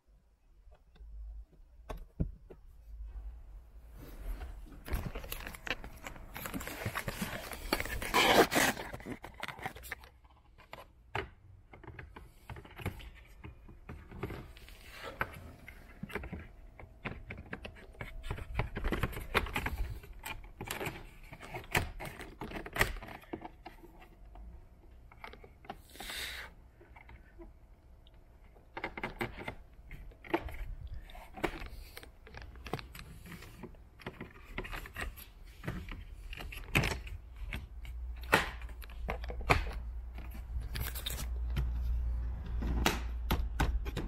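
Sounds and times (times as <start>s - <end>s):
plastic and rubber scraping: 3.8s - 10.0s.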